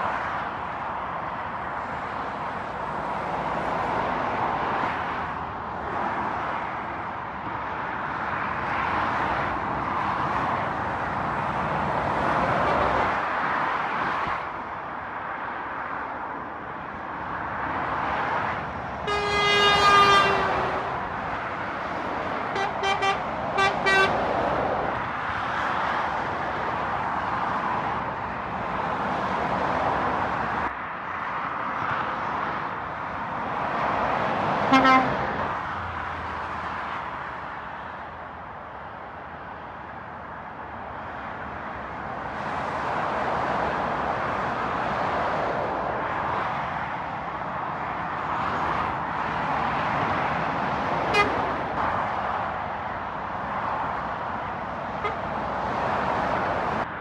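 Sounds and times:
motorway traffic passing: 0:00.0 - 0:57.0
vehicle horn blasts and toots: 0:19.1 - 0:20.9, 0:22.6 - 0:24.2, 0:34.7 - 0:35.2, 0:51.1 - 0:51.4, 0:55.0 - 0:55.2.

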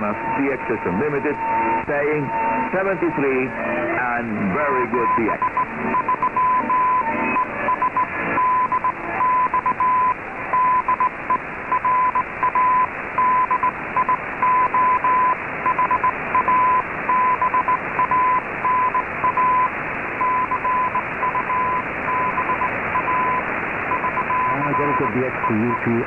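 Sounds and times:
radio static hiss: 0:00.0 - 0:26.0
morse code tone: 0:04.5 - 0:11.1, 0:11.7 - 0:26.0.

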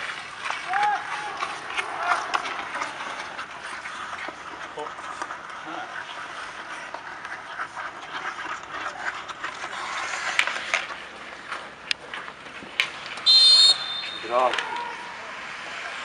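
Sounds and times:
skates scraping on ice: 0:00.0 - 0:16.0
referee's whistle blast: 0:13.2 - 0:14.3.

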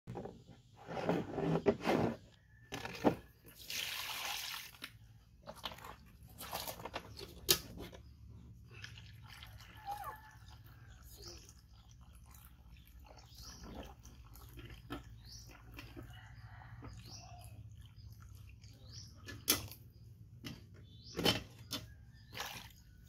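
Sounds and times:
water splashing into plastic basin: 0:03.2 - 0:07.4.

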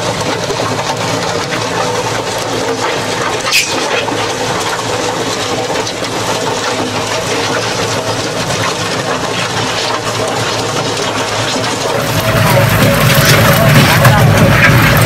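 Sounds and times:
tractor running under load: 0:00.0 - 0:15.0
dirt and rock pouring out: 0:09.5 - 0:15.0.

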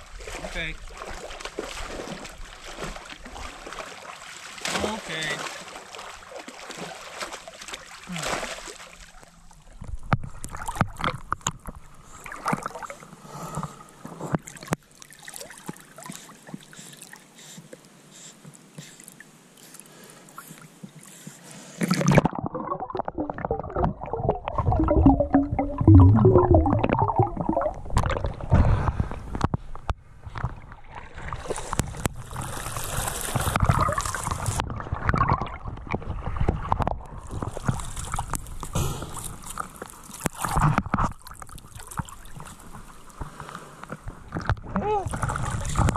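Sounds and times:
river water sloshing and gurgling: 0:00.0 - 0:45.9
dog splashing while swimming: 0:00.1 - 0:09.2.

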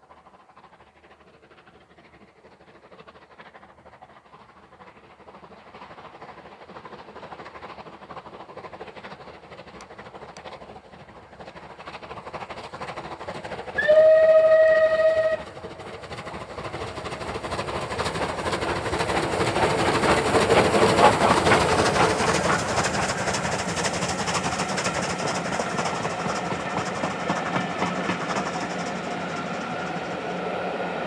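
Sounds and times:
train passing: 0:00.0 - 0:31.0
wheels clattering on rails: 0:00.7 - 0:30.2
steam locomotive whistle: 0:13.8 - 0:15.5.

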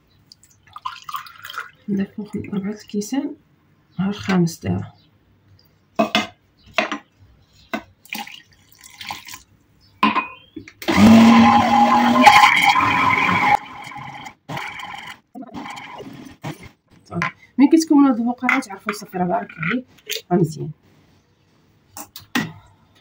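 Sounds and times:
electric blender motor running: 0:10.8 - 0:16.0.

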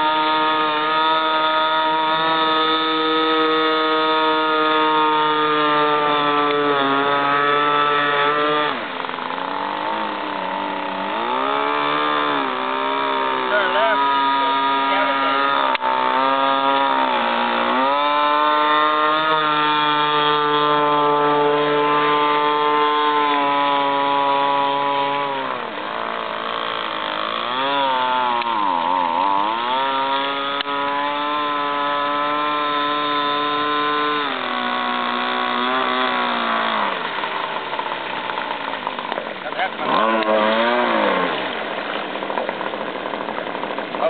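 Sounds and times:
two-stroke engine at high revs: 0:00.0 - 0:44.0.

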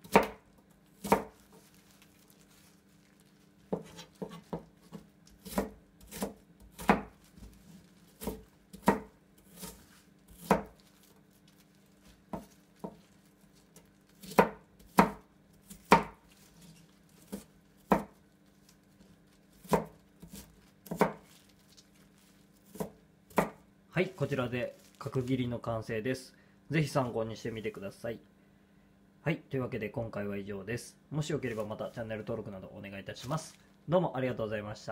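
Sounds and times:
knife chopping on cutting board: 0:00.0 - 0:00.4, 0:01.0 - 0:01.6, 0:03.7 - 0:11.2, 0:12.2 - 0:13.2, 0:14.2 - 0:18.2, 0:19.0 - 0:21.4, 0:22.6 - 0:23.6.

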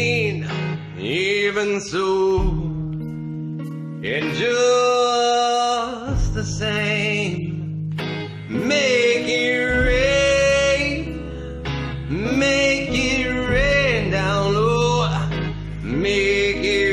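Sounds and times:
band accompaniment with bass: 0:02.4 - 0:04.4, 0:06.1 - 0:16.9.

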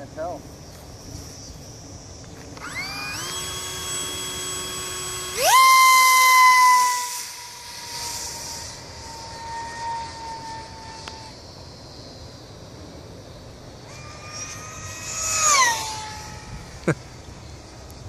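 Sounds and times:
model plane motor whining: 0:01.3 - 0:11.4, 0:13.8 - 0:17.8.

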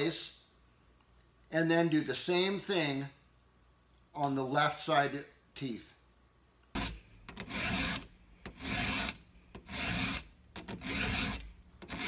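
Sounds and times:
file rasping on chainsaw chain: 0:06.8 - 0:12.0.

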